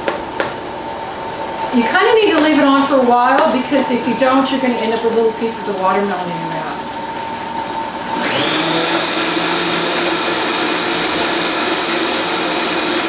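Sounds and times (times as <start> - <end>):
blender whirring: 7.9 - 13.0.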